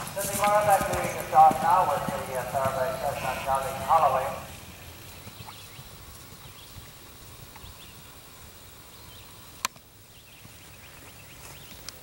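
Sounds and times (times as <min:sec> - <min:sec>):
horse galloping on turf: 0:00.0 - 0:08.1.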